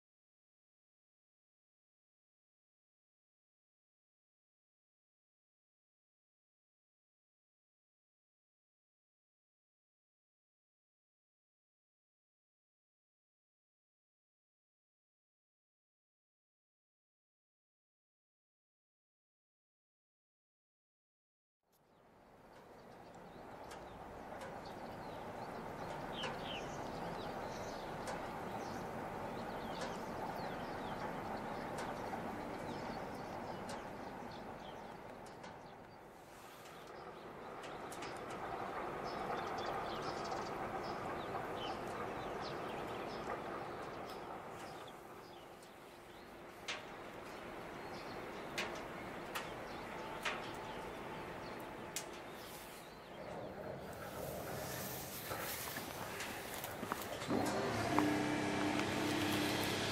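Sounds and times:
small birds chirping: 21.8 - 59.9.

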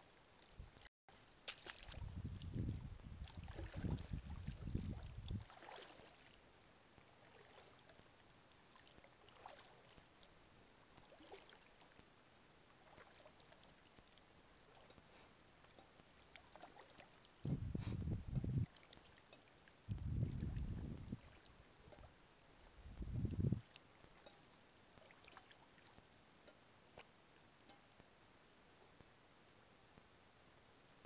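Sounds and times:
wading through shallow water: 0.3 - 26.6
low rumble: 17.5 - 18.7.

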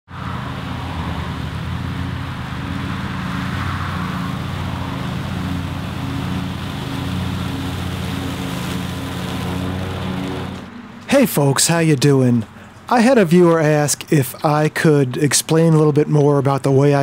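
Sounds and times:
riding mower engine running: 0.1 - 13.1
mower blades mulching leaves: 0.4 - 10.7.

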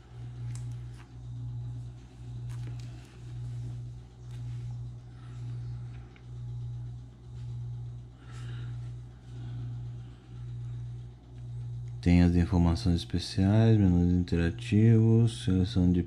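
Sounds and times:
low droning hum: 0.0 - 16.0
plastic wrapper rustling: 2.2 - 4.7.

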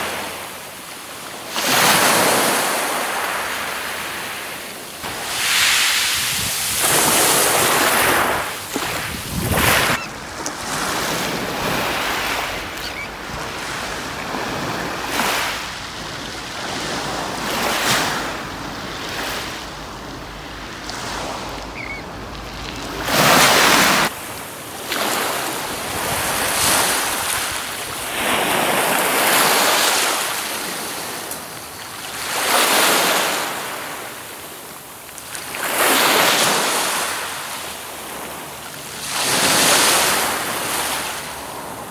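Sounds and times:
waves washing up shingle beach: 0.0 - 41.9
wind rumble on microphone: 6.1 - 15.1.

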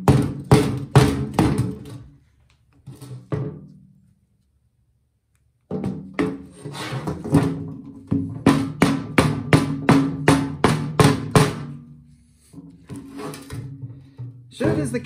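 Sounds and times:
rubber mallet knocking on metal: 8.0 - 11.8.

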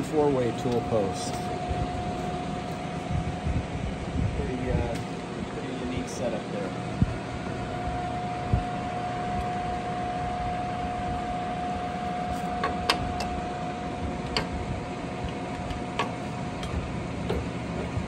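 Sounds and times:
lathe running with hum: 0.0 - 18.0.

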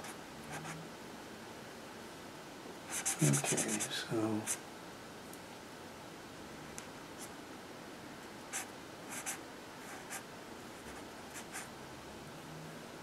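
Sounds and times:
room hiss: 0.0 - 13.0
marker stroking on paper: 2.9 - 4.6, 8.5 - 10.2, 10.8 - 11.7.

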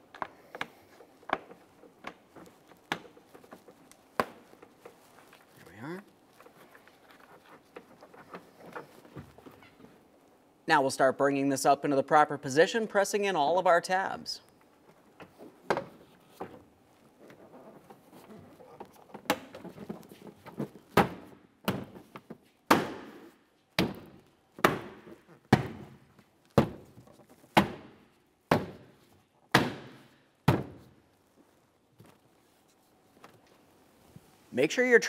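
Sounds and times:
plastic panel rustling: 6.2 - 10.1.

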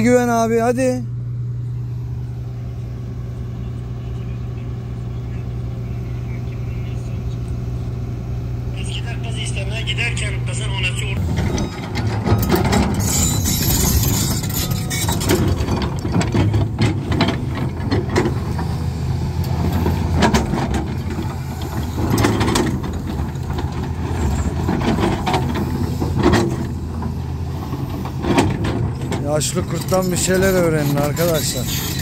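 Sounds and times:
excavator diesel engine running: 0.0 - 32.0
machine knocks and clanks: 11.2 - 18.8, 19.4 - 32.0.

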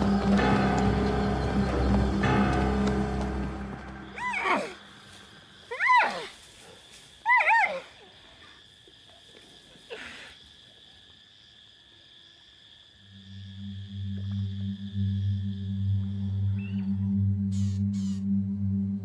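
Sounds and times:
low background music: 0.0 - 4.9, 13.4 - 19.0.

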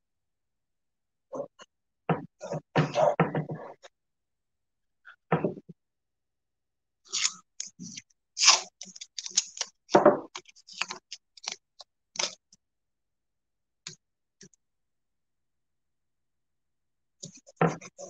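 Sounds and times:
masking tape ripping: 8.4 - 9.7.

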